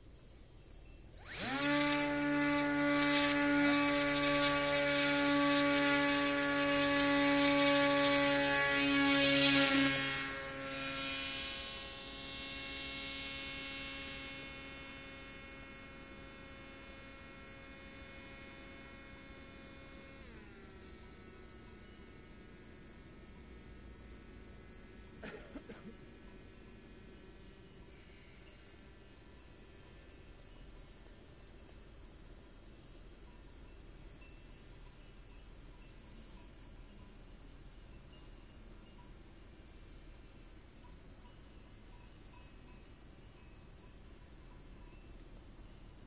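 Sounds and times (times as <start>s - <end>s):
model aircraft motor whine: 1.0s - 33.8s.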